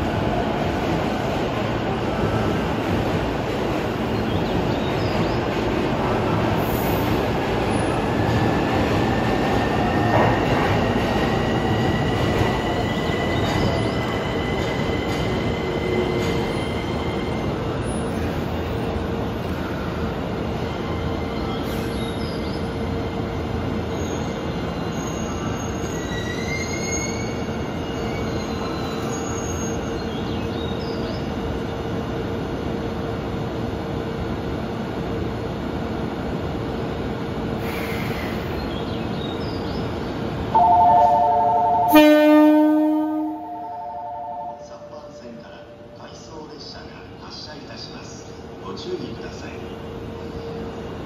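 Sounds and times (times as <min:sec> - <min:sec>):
train engine rumble: 0:00.0 - 0:51.0
train air horn blast: 0:40.6 - 0:44.6
electronic horn melody: 0:40.6 - 0:44.7.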